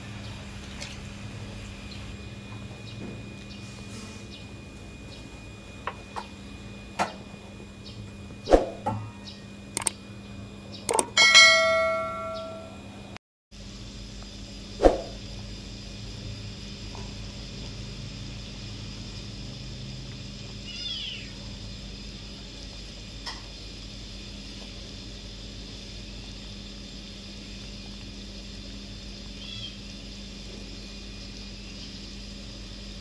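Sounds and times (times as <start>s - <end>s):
broth boiling and bubbling: 0.0s - 10.6s, 13.6s - 33.0s
low hum: 0.0s - 20.7s
sharp click: 9.8s - 10.0s, 10.9s - 11.2s.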